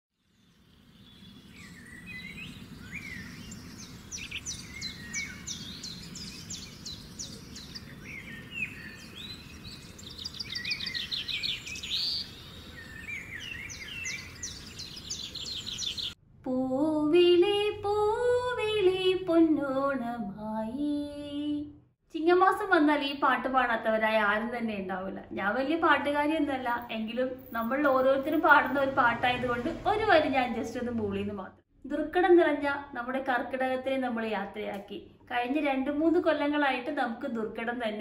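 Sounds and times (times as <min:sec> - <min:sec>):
birds chirping and trilling: 0:00.2 - 0:16.2
woman singing slow melody: 0:16.5 - 0:21.7.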